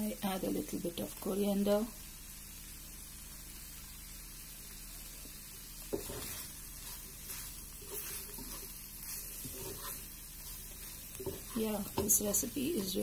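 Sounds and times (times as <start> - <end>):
vegetables sizzling in a pan: 0.0 - 13.0
wooden spoon knocking on pan: 5.9 - 6.3, 11.2 - 12.5
spoon scraping while stirring: 6.0 - 12.1.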